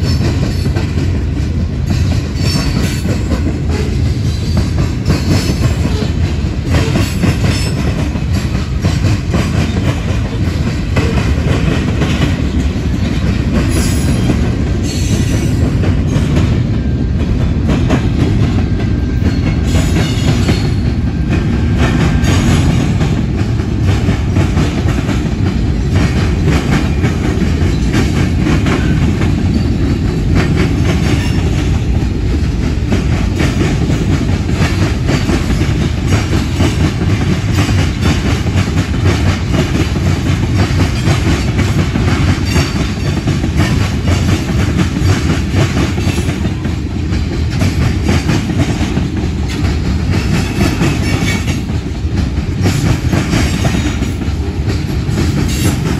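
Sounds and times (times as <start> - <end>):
freight train rumbling past: 0.0 - 55.9
wheels clattering over rail joints: 21.6 - 55.9.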